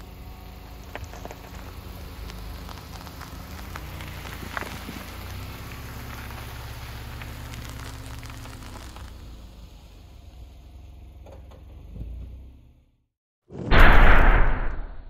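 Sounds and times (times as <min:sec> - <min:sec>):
tyres crunching over gravel: 0:00.0 - 0:10.0
car engine hum: 0:00.0 - 0:13.0.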